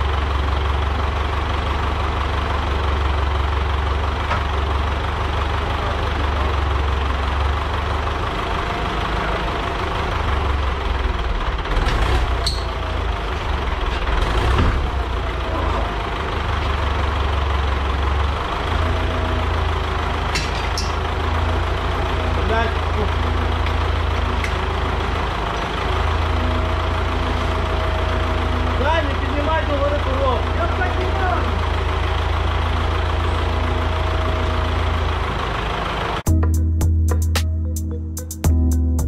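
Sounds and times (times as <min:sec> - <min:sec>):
diesel tractor engine idling: 0:00.0 - 0:38.7.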